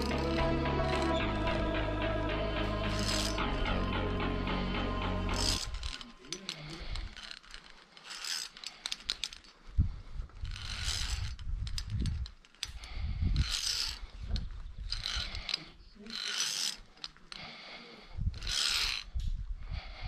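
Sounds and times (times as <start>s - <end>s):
carabiner scraping along steel cable: 0.0s - 1.7s, 2.8s - 3.6s, 5.3s - 19.5s
metal carabiner clicks: 5.4s - 9.6s, 10.4s - 17.4s, 18.3s - 19.4s.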